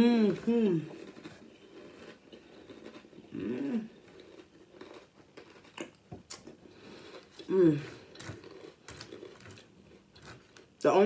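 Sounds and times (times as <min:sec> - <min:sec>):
person humming: 0:00.0 - 0:00.9, 0:03.4 - 0:03.9, 0:07.4 - 0:08.0
person chewing crunchy cereal: 0:00.0 - 0:10.8.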